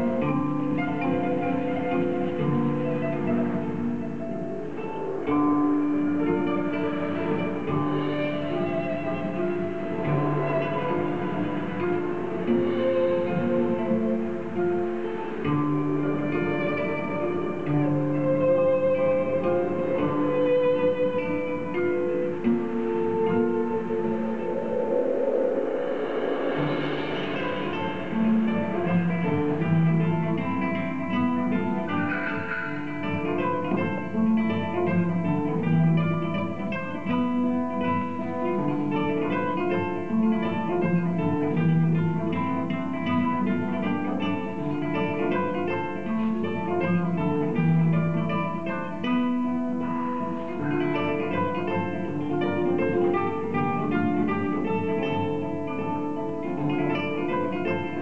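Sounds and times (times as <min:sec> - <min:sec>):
flamenco acoustic guitar: 0:00.0 - 0:58.0.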